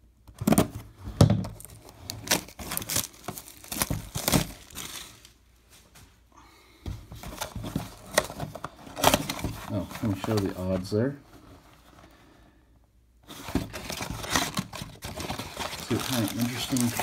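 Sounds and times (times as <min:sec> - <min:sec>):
plastic shrink-wrap crinkling: 0:01.6 - 0:05.4, 0:13.6 - 0:17.0.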